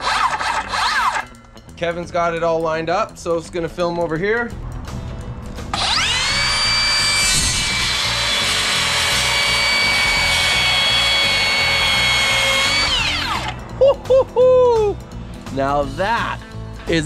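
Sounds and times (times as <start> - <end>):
circular saw whining: 0.0 - 1.4, 5.7 - 13.6.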